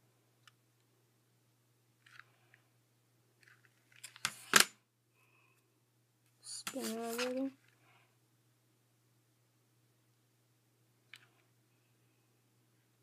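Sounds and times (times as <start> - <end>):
fidget spinner scrape and knock: 6.5 - 7.6.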